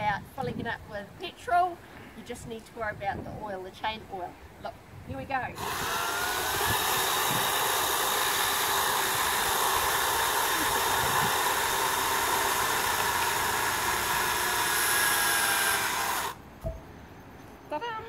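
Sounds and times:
chainsaw cutting wood: 5.6 - 16.4.

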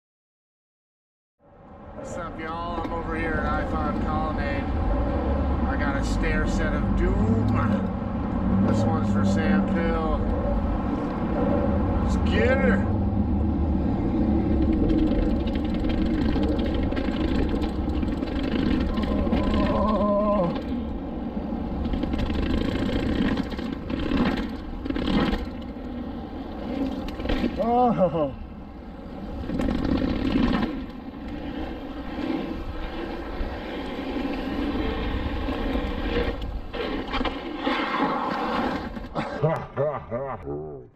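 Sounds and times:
wind buffeting microphone: 1.8 - 37.1
bike rattling down stairs: 14.4 - 20.8, 21.7 - 26.0, 29.3 - 37.4.

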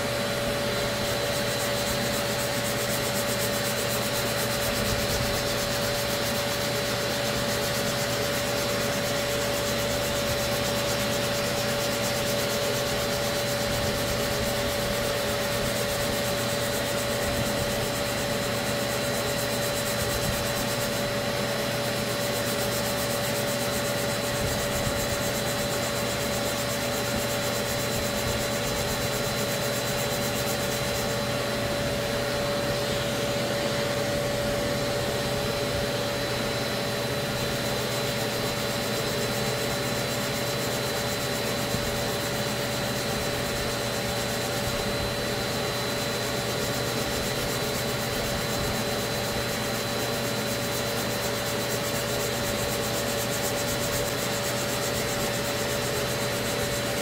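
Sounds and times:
orbital sander whining: 0.0 - 40.3.

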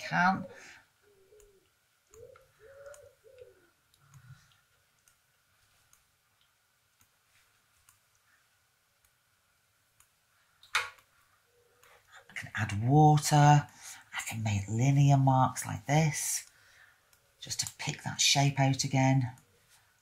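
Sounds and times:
pigeon cooing: 0.4 - 4.4, 11.4 - 12.4
faint ticks: 1.3 - 7.2.

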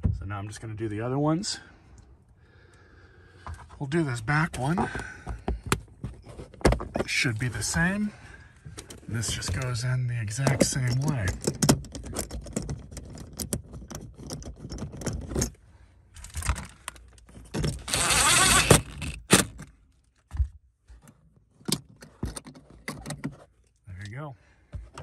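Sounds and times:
metal hook rattling against plastic: 10.4 - 15.6
cordless driver running: 17.8 - 19.5.

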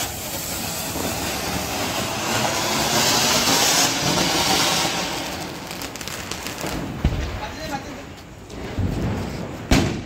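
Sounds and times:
ground firework hissing: 0.0 - 7.0.

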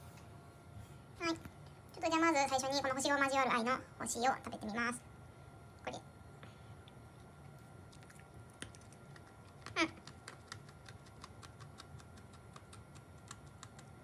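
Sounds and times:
crunchy topping being chewed: 6.8 - 14.0.

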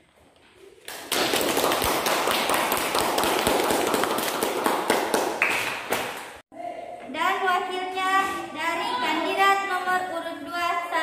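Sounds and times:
people clapping: 0.8 - 6.4.

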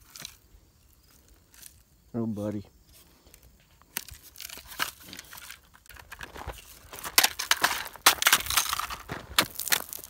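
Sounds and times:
footsteps on gravel: 3.6 - 10.0.

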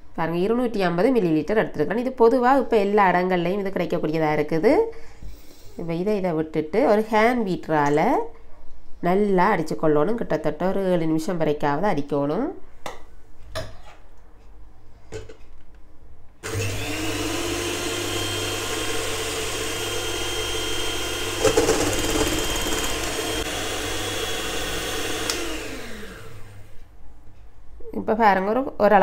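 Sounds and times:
electric hand mixer whipping cream: 16.4 - 26.8
mixer switch clicks: 25.2 - 25.6.

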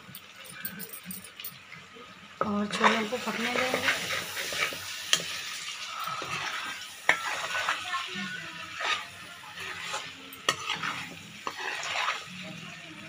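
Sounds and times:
curry sizzling: 0.0 - 13.0
metal spoon scraping a pan: 2.7 - 12.6.

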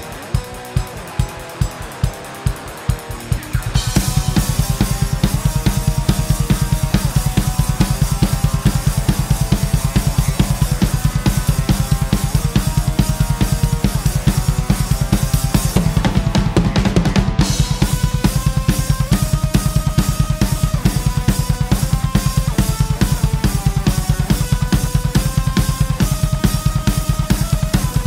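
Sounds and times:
electric guitar riff: 0.0 - 28.0
heavy metal drum kit: 0.0 - 28.0.

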